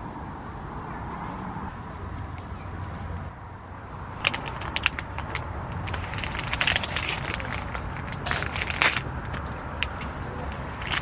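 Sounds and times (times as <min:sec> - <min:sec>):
plastic wrapper crinkling: 0:04.2 - 0:11.0.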